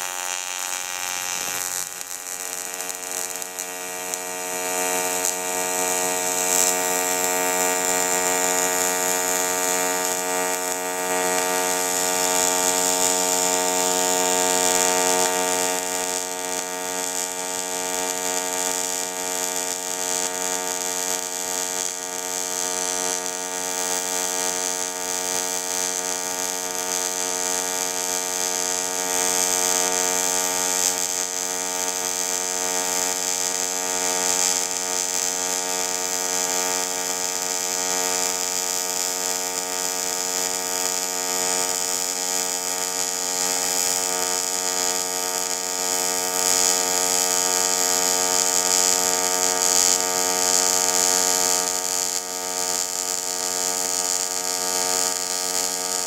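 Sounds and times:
welding arc buzzing: 0.0 - 56.0.

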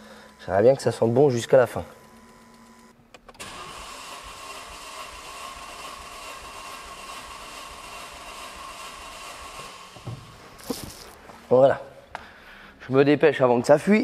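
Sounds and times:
starter motor whine: 0.0 - 10.2.

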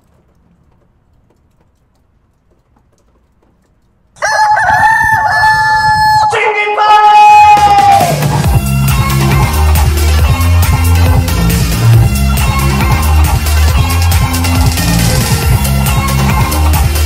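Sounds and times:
rooster crowing: 4.2 - 6.5.

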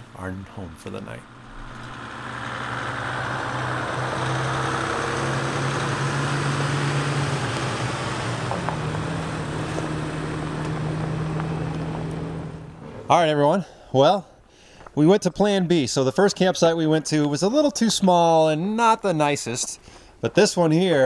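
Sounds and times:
higher engine note: 0.0 - 13.1
vehicle engines at low speed: 0.0 - 13.1.

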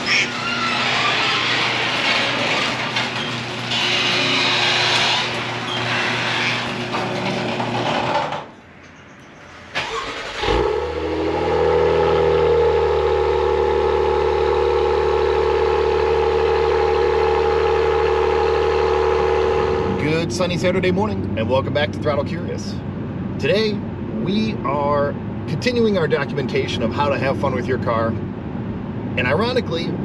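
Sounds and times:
car engine starting and idling: 9.4 - 30.0.

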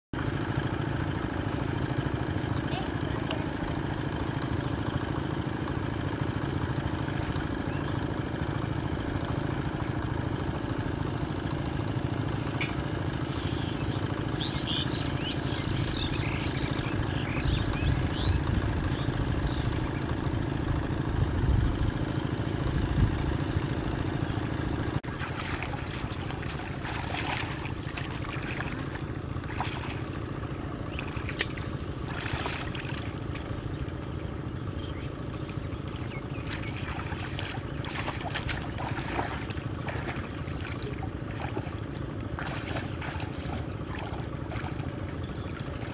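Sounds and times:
low motor drone: 0.2 - 45.9
water splashing and sloshing: 24.9 - 45.9.

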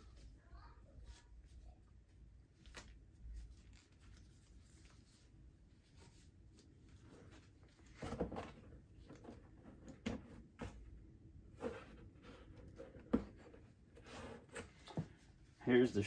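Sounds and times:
soft cloth rustling: 0.0 - 8.0.

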